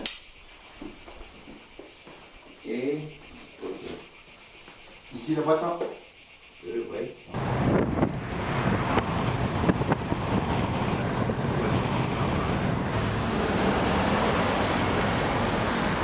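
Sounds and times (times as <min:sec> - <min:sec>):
wind and road noise: 0:07.3 - 0:16.0
wind buffeting microphone: 0:07.4 - 0:16.0.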